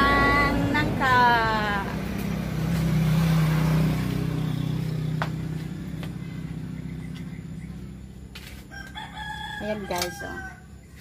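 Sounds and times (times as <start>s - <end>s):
vehicle engine passing by: 0.0s - 11.0s.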